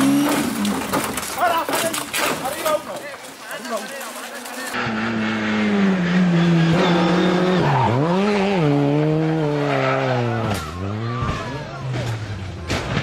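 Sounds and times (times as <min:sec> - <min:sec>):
rally car engine revving: 0:00.0 - 0:01.0, 0:04.7 - 0:13.0.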